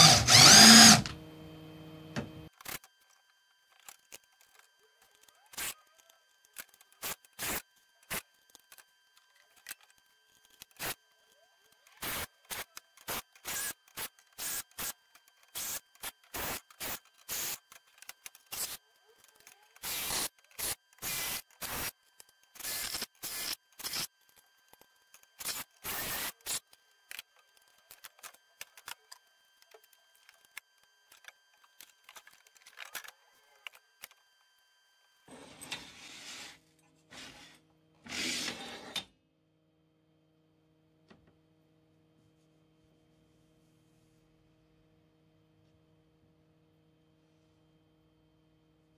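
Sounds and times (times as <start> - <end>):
impact driver driving screws: 0.0 - 1.1.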